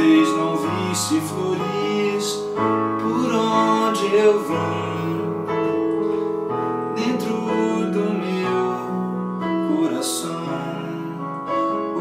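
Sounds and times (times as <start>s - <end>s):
slow piano chords: 0.0s - 12.0s.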